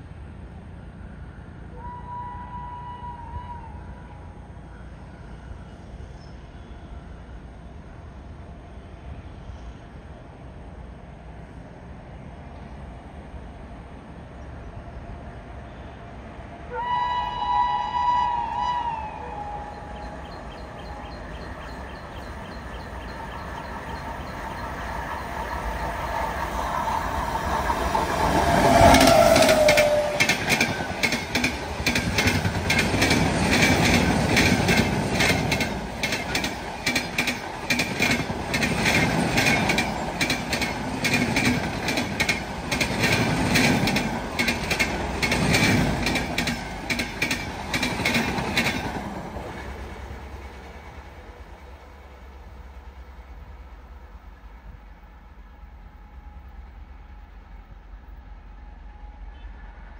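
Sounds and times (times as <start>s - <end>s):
train rumbling past: 0.0s - 59.9s
wheels clacking over rail joints: 20.0s - 51.0s.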